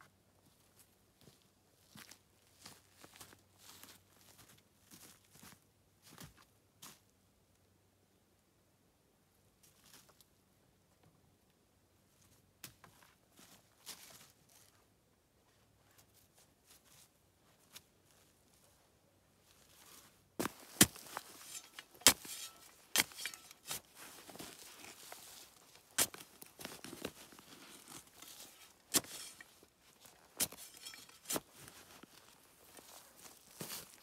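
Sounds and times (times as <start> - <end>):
brush rustling and tearing: 20.4 - 29.6.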